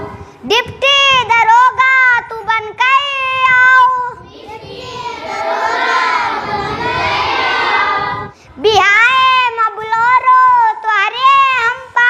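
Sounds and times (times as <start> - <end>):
child singing alone: 0.4 - 5.2, 7.8 - 12.0
children singing together: 4.2 - 8.3.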